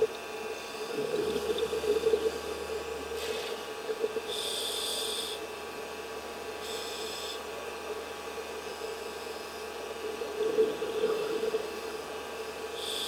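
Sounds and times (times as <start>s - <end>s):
steady underwater hum: 0.0s - 13.0s.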